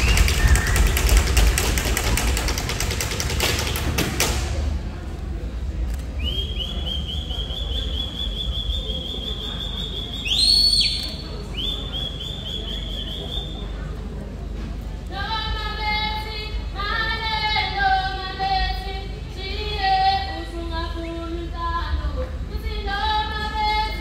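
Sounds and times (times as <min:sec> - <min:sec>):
sharp claps or stamps: 0:00.0 - 0:04.6
shrill whistle blasts: 0:06.2 - 0:13.7.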